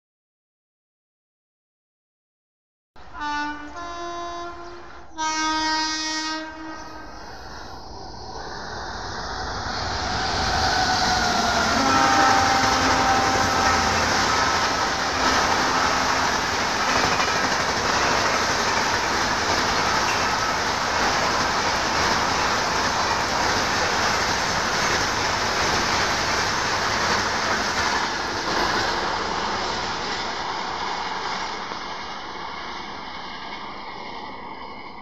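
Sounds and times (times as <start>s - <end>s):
train horn blasts: 3.1s - 7.2s, 11.2s - 17.2s
train rumble and wheel clatter: 3.1s - 35.0s.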